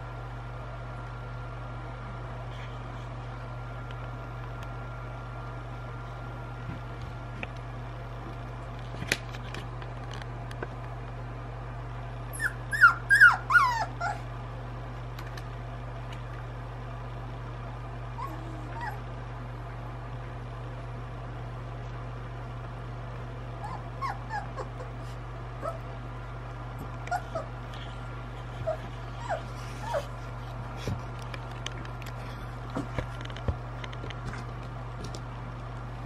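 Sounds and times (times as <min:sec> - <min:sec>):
puppies whimpering: 0:12.3 - 0:14.3, 0:18.2 - 0:19.0, 0:23.6 - 0:25.9, 0:27.0 - 0:30.2.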